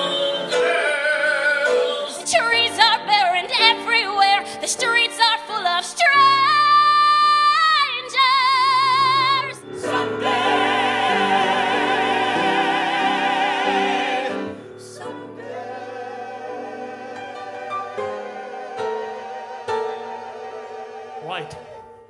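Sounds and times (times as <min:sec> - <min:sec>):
group of singers holding chord: 0:00.0 - 0:03.8, 0:08.5 - 0:22.0
soft music: 0:00.0 - 0:22.0.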